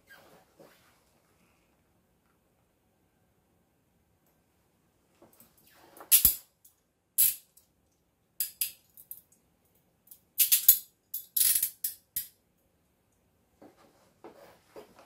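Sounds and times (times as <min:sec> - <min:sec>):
handcuffs rattling and clicking: 0:08.4 - 0:09.3.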